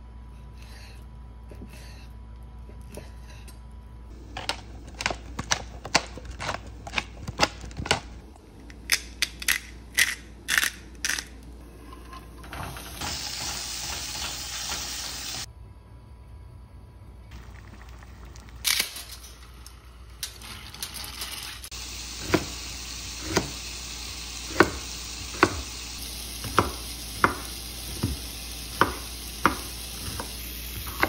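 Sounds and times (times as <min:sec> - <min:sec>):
food sizzling in oil: 0:12.4 - 0:15.5, 0:21.4 - 0:31.0
knife chopping on wooden board: 0:24.5 - 0:25.7, 0:26.4 - 0:31.0.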